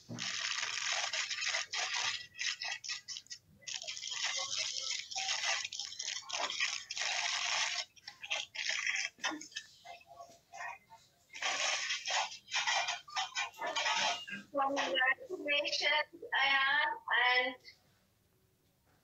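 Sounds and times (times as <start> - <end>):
wrapping tearing and crinkling: 0.1 - 9.4.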